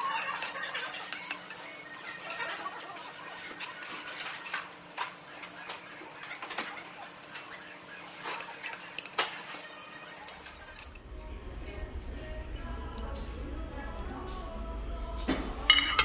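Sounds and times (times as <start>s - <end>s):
utensils clicking on dishes: 0.0s - 11.0s, 15.7s - 16.0s.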